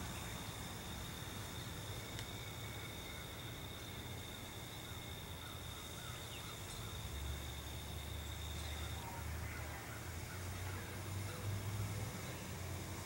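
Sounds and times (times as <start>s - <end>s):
light chirps: 0.0s - 9.1s.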